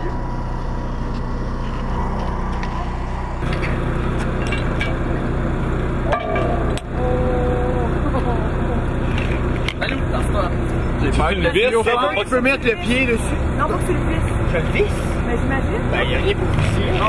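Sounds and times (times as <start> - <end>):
low hum: 0.0 - 11.2
metal chain and plug clinking: 4.4 - 5.0.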